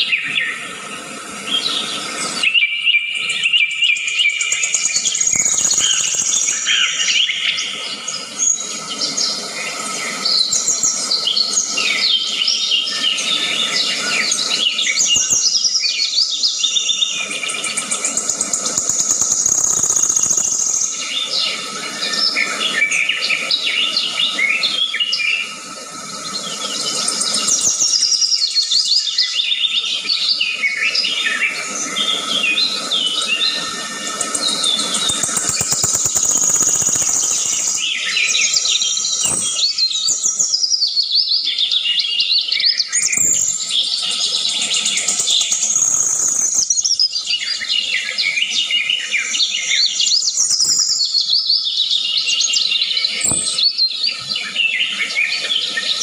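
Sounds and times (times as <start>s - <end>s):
birds chirping and singing: 1.5s - 25.5s, 26.3s - 56.0s
steady high-pitched tone: 33.1s - 40.6s, 44.4s - 46.8s.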